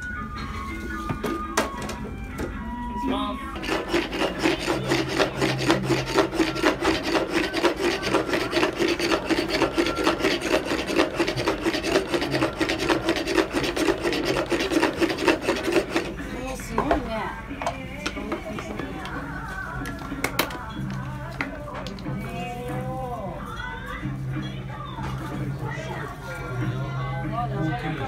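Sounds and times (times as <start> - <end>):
rasping scrape of wood plane: 3.6 - 16.2.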